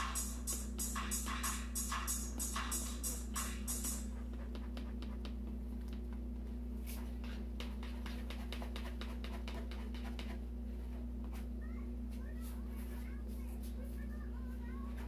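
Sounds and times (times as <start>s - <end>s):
music: 0.0s - 4.4s.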